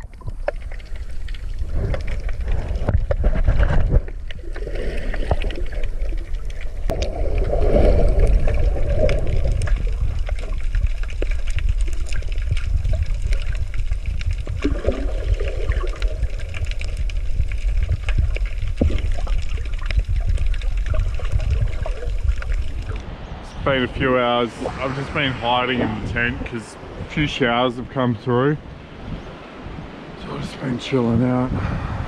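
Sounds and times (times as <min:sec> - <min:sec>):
underwater clicks and crackles: 0:00.0 - 0:23.1
underwater rumble of moving water: 0:00.0 - 0:32.0
swirling water surges: 0:04.3 - 0:31.4.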